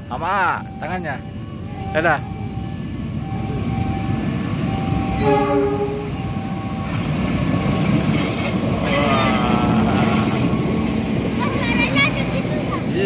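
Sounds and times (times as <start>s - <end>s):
train engine and rail rumble: 0.0s - 13.0s
diesel locomotive horn: 5.1s - 6.5s, 8.1s - 10.4s.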